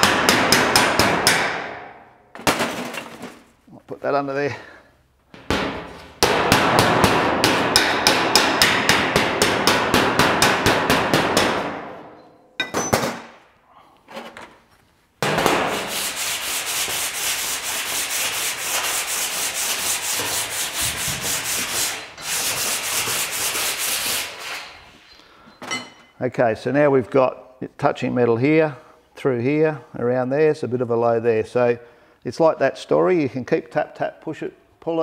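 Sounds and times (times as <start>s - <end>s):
file rasping on sheet metal: 15.7s - 24.8s.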